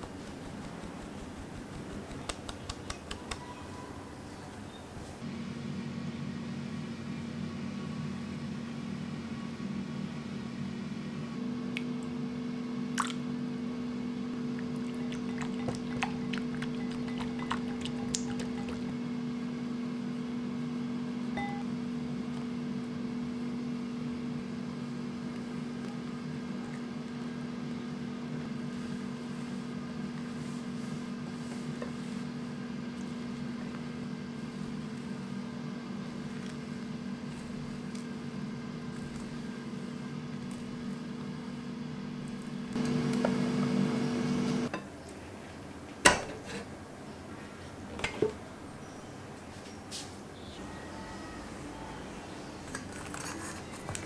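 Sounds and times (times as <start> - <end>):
kitchen appliance motor hum: 33.0 - 44.7.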